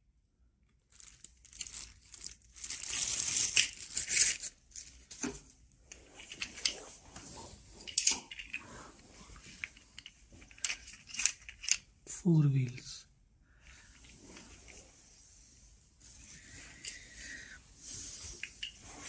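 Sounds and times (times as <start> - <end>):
plastic bag crinkling: 0.9 - 5.2.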